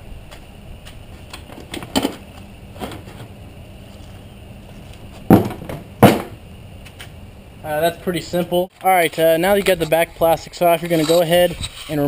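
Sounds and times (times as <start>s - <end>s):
fender clunking on concrete: 5.1s - 7.1s
plastic fender knocks and clatters: 5.3s - 6.4s.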